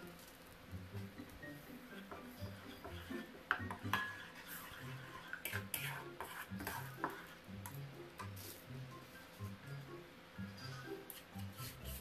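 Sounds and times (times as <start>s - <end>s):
ladle stirring liquid in wok: 1.9s - 8.5s
ladle knocking and scraping pan: 2.0s - 8.3s.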